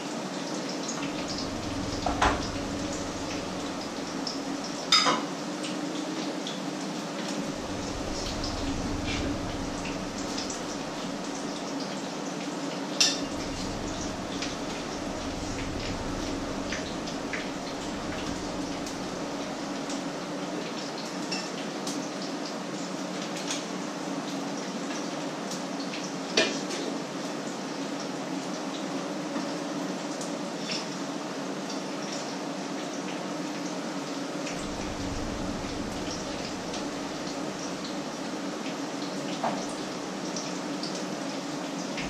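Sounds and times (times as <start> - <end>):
steady low hum: 1.0 - 4.9, 7.4 - 11.8, 13.2 - 20.3, 34.5 - 38.3.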